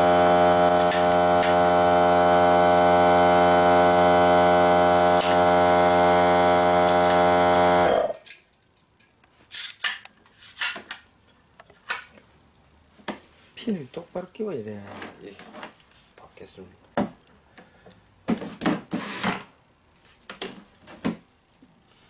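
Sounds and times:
air compressor humming: 0.0s - 8.2s.

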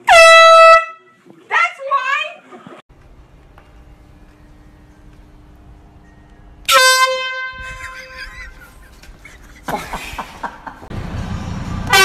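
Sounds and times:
air horn blast: 0.0s - 1.0s, 6.6s - 8.2s.

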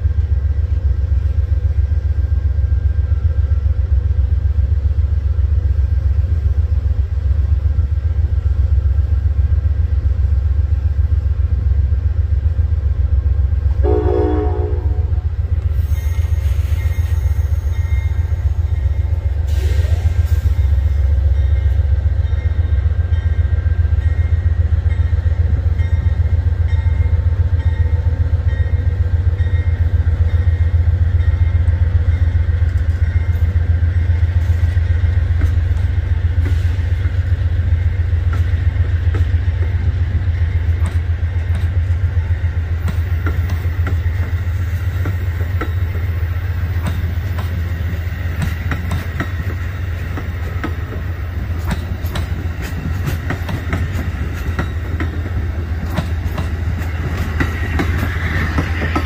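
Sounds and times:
freight train rumble: 0.0s - 59.0s
wheels clicking over rail joints: 46.8s - 59.0s.

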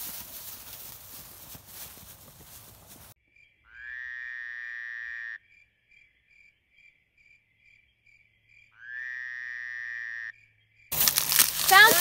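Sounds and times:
crickets chirping: 2.9s - 3.7s, 5.4s - 8.8s.

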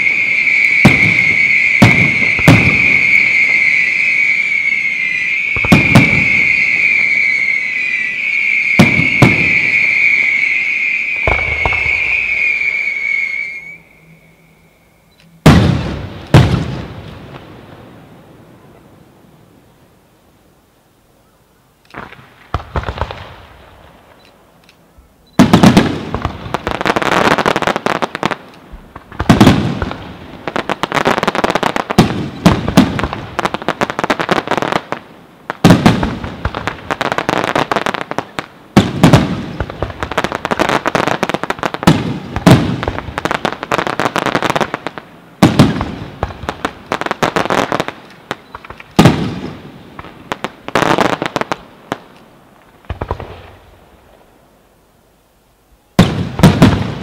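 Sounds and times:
fireworks bangs: 0.0s - 14.0s, 15.4s - 18.8s, 21.9s - 24.2s, 25.4s - 54.2s, 56.0s - 57.0s
fireworks crackling rattle: 45.4s - 49.4s.

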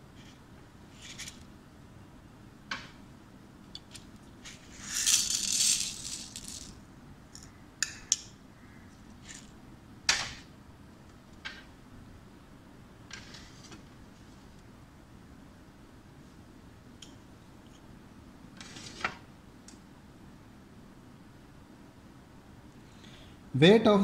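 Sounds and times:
grains rattling against glass: 4.5s - 6.8s.

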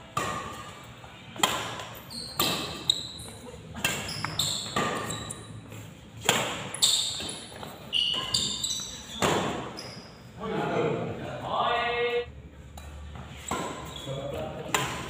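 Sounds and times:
court shoes squeaking: 0.0s - 10.4s, 12.5s - 15.0s
rackets hitting shuttlecock: 0.1s - 0.8s, 1.4s - 5.4s, 6.2s - 9.8s, 14.6s - 15.0s.

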